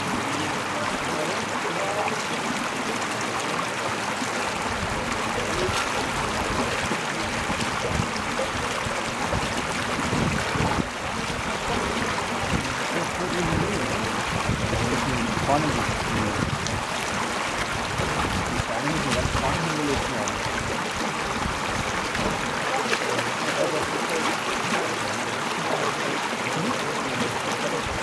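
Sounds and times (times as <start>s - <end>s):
creek water running over stones: 0.0s - 28.0s.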